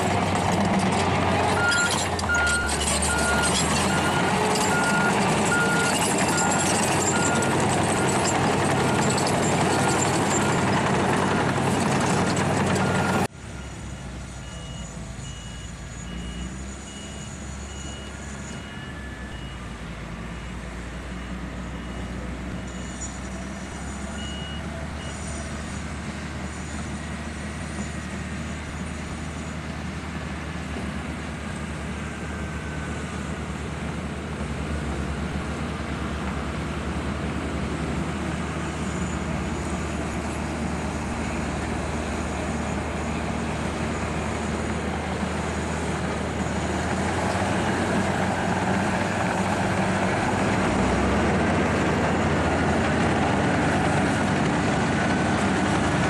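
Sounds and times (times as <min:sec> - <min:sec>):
bulldozer diesel engine running: 0:00.0 - 0:56.0
reversing alarm beeping: 0:01.6 - 0:08.3, 0:12.7 - 0:25.3.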